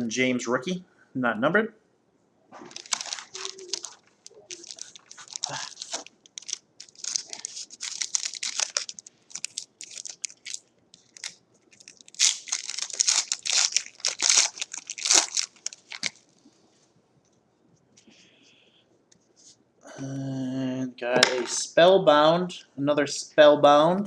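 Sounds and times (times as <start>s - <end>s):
wrapper crinkling and tearing: 2.7s - 16.4s.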